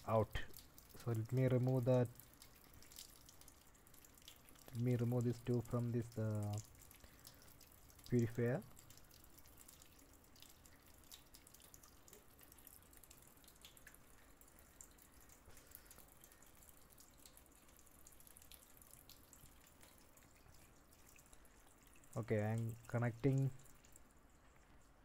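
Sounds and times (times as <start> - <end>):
water drips and splashes: 0.0 - 25.0
water trickling into metal sink: 0.0 - 25.0.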